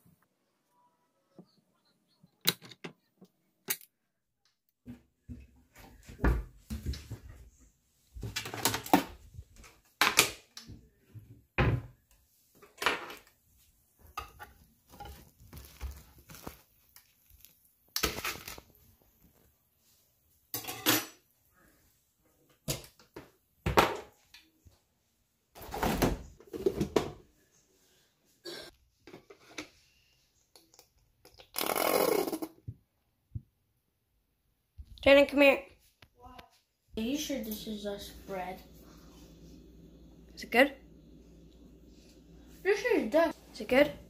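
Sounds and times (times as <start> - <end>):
dishes clunking and clattering: 20.6 - 21.2.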